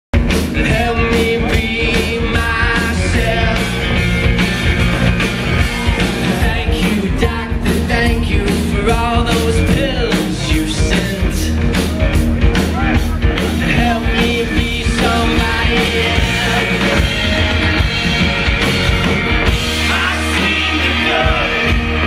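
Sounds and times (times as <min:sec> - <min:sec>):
drums: 0:00.1 - 0:22.0
electric guitar: 0:00.2 - 0:22.0
keyboard: 0:00.2 - 0:22.0
person singing: 0:00.4 - 0:03.9, 0:06.2 - 0:11.7, 0:13.4 - 0:17.4, 0:19.8 - 0:22.0.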